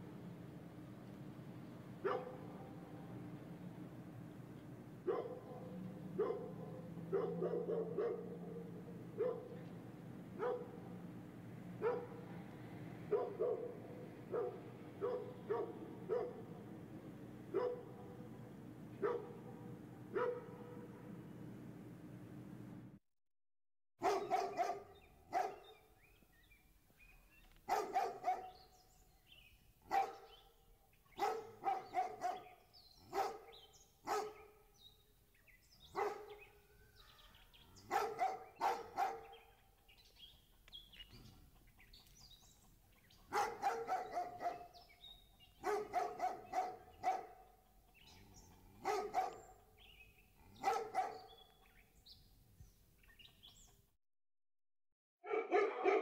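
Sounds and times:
dog barking: 2.0 - 2.8, 5.0 - 9.6, 10.4 - 10.9, 11.8 - 12.4, 13.1 - 16.6, 17.5 - 18.3, 19.0 - 21.0, 24.0 - 25.8, 27.7 - 28.7, 29.9 - 30.5, 31.2 - 34.6, 35.9 - 39.5, 43.3 - 44.9, 45.6 - 47.6, 48.2 - 49.7, 50.4 - 51.5, 55.2 - 56.0.

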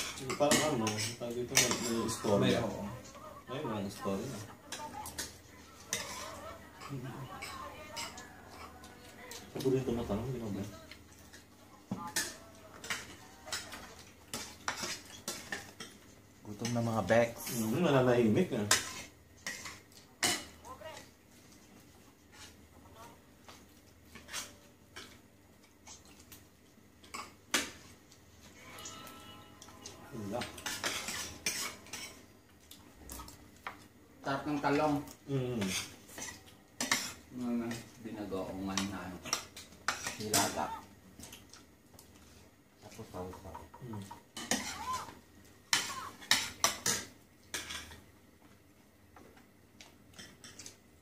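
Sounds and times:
cutlery clinking on china plates: 0.0 - 2.2, 30.4 - 32.2
cutlery clinking on plates: 0.0 - 2.2, 4.7 - 8.7, 12.1 - 16.8, 28.8 - 32.2, 44.0 - 45.0, 45.7 - 48.0, 50.1 - 50.8.

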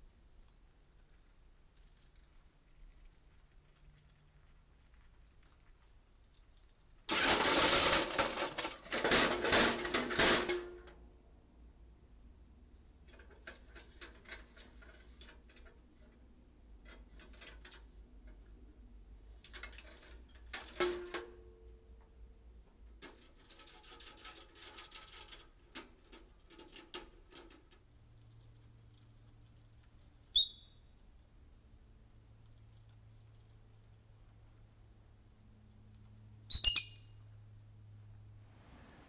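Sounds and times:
squirrels scrabbling in wire cage: 1.0 - 10.7, 19.4 - 21.2, 23.0 - 31.4
sharp high squeak: 30.3 - 30.9, 36.5 - 37.2.

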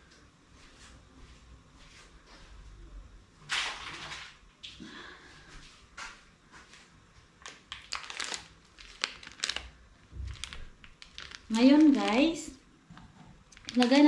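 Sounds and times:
packaging rustling: 7.4 - 12.4, 13.5 - 14.0.

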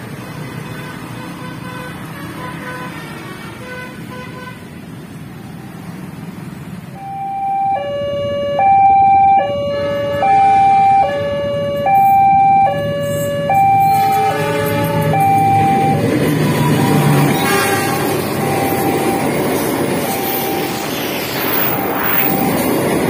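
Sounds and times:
road traffic: 0.0 - 23.0
two-tone level crossing alarm: 7.0 - 23.0.

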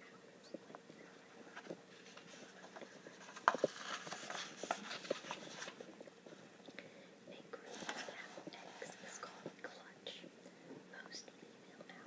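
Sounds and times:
paper rustling: 1.6 - 5.9, 7.7 - 8.9.

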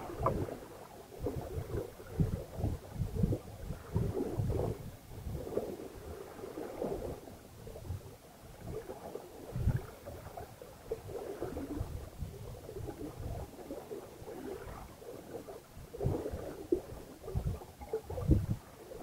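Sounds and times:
wind buffeting microphone: 0.0 - 8.9, 9.5 - 10.4, 15.8 - 19.0
water rushing along a hull: 0.0 - 19.0.

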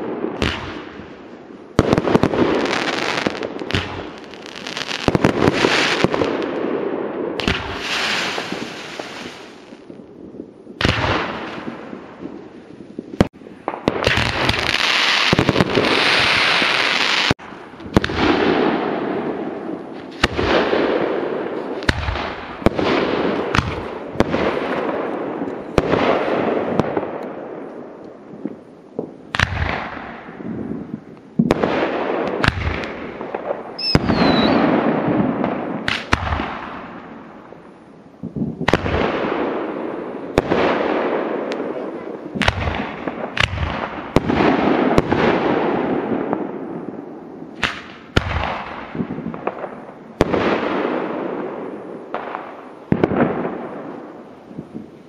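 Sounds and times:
firework bangs: 0.0 - 37.4, 38.3 - 54.9
hiss of burning stars: 7.5 - 10.4.

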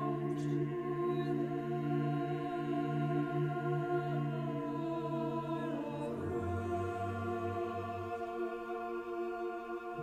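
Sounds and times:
choir singing a slow hymn: 0.0 - 10.0.

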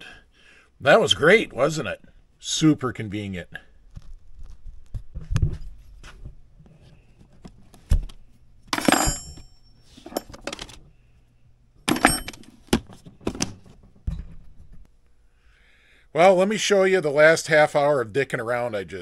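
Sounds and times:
metal jingling: 8.8 - 10.7, 11.9 - 12.6
metal clatter: 8.8 - 10.8, 11.9 - 14.9
metal tools clinking and knocking: 8.8 - 10.8, 11.9 - 14.8.

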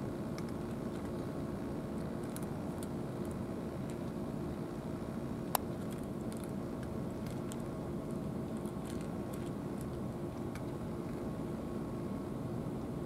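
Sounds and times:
low mechanical hum: 0.0 - 13.0
cat chewing food: 0.3 - 4.3, 5.5 - 11.4.

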